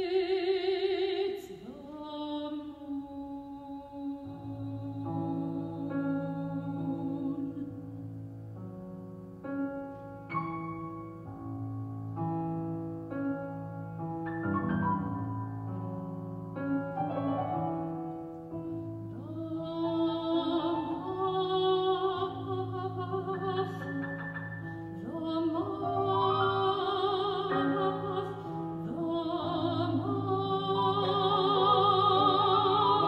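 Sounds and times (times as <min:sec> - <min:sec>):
soprano singing with vibrato: 0:00.0 - 0:08.1, 0:17.1 - 0:33.0
piano chords: 0:04.2 - 0:33.0.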